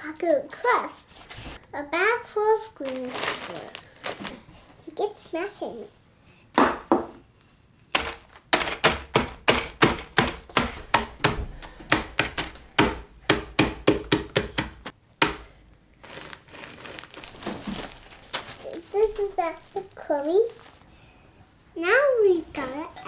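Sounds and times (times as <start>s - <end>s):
rolling pin rustling over bag: 7.3s - 8.8s, 16.0s - 21.0s
rolling pin whacking crackers: 7.9s - 15.5s.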